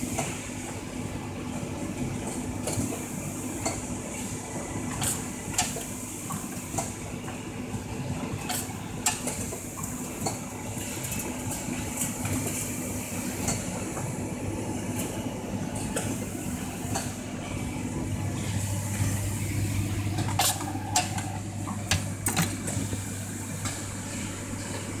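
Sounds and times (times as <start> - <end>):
machine hum: 14.5 - 25.0.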